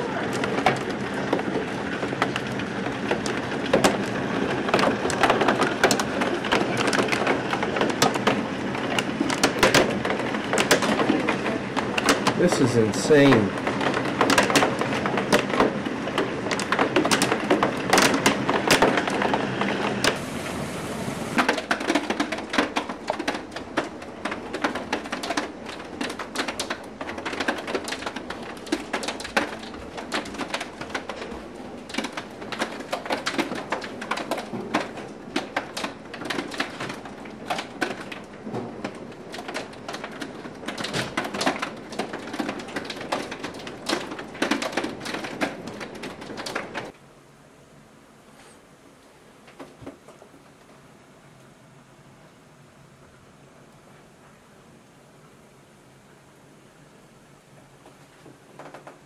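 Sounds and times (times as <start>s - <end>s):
hailstones striking hard surfaces: 0.1s - 47.0s
rain hissing: 10.0s - 14.0s, 17.5s - 22.2s.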